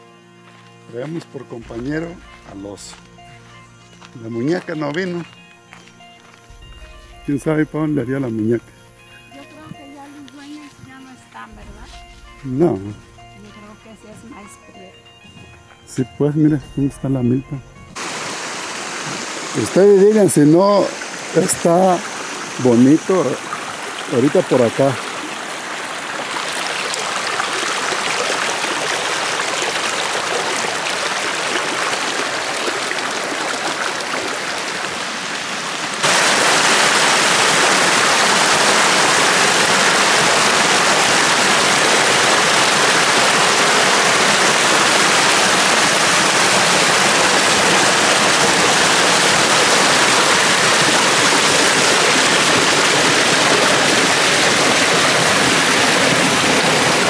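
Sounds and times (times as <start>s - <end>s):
stream water rushing: 18.0s - 57.0s.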